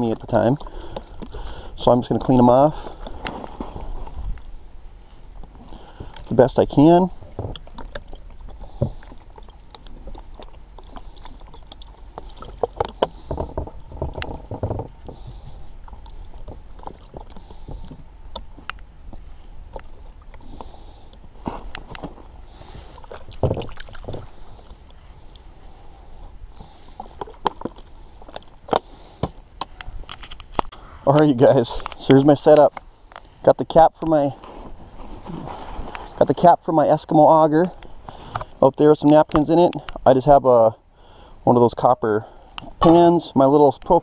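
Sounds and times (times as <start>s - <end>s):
water pouring and splashing: 7.4s - 13.1s, 22.9s - 24.6s.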